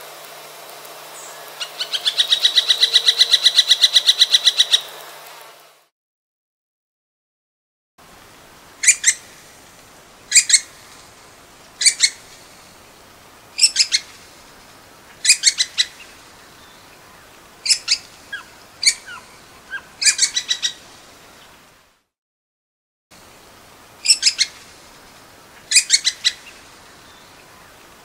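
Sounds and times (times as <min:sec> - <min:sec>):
woodpecker calling: 0:01.2 - 0:05.0, 0:08.8 - 0:09.3, 0:10.3 - 0:10.9, 0:11.8 - 0:12.5, 0:13.6 - 0:14.4, 0:15.1 - 0:20.9, 0:24.0 - 0:24.7, 0:25.5 - 0:27.8.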